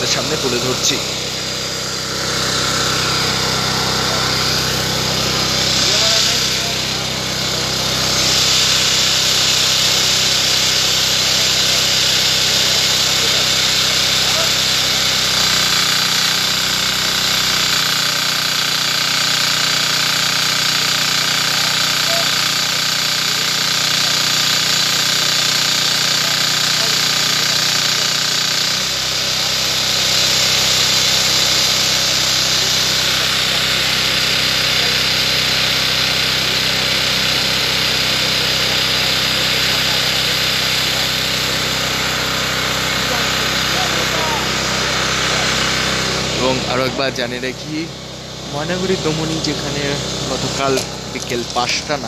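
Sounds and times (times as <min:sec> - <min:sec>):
high whine: 0:00.0 - 0:17.0, 0:43.1 - 0:52.0
small engine running: 0:00.0 - 0:52.0.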